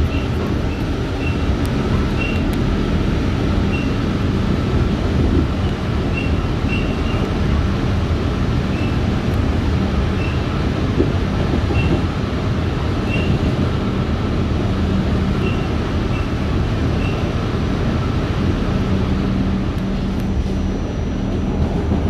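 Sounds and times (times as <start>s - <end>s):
subway train rumble: 0.0s - 22.0s.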